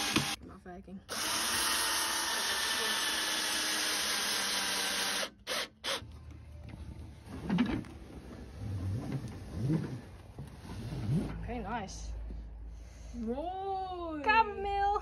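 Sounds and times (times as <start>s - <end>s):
cordless drill driving screw: 0.0s - 0.4s, 1.1s - 6.0s.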